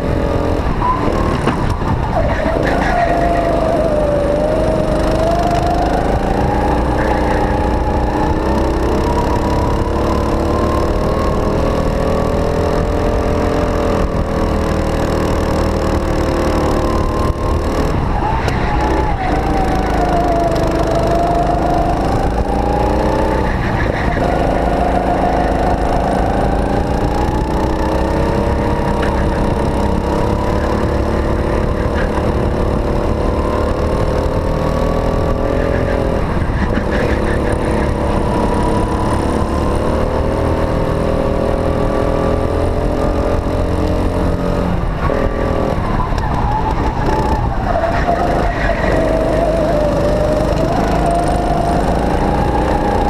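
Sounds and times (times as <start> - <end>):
go-kart engine revving: 0.0 - 53.0.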